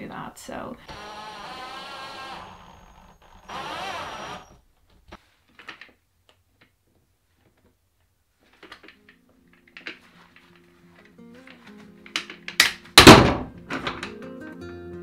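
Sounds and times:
cordless drill whining: 0.9 - 4.7.

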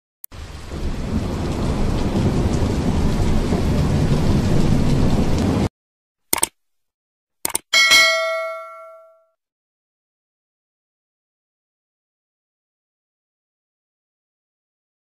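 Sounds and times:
thunder and rain: 0.3 - 5.7.

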